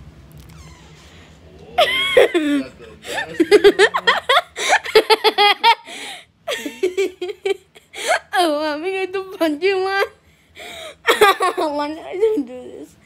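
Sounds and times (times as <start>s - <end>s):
people laughing: 1.8s - 7.8s.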